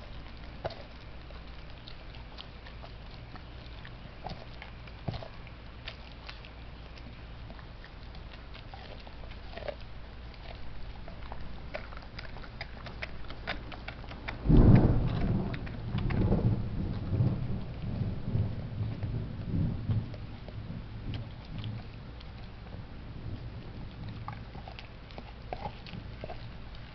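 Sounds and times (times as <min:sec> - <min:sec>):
dog chewing and crunching bone: 0:00.0 - 0:26.9
loud low rumble: 0:10.7 - 0:22.2.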